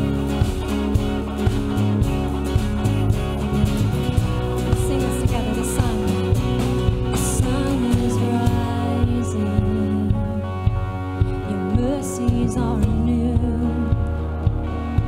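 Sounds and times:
bass guitar: 0.0 - 15.0
drums keeping a steady beat: 0.0 - 15.0
strummed acoustic guitars: 0.0 - 15.0
woman singing: 4.6 - 10.6, 11.2 - 14.4.

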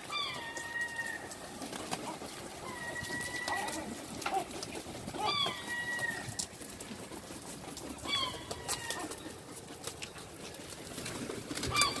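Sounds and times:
wings flapping: 0.0 - 12.0
herring gulls calling: 2.2 - 6.4, 11.6 - 12.0.

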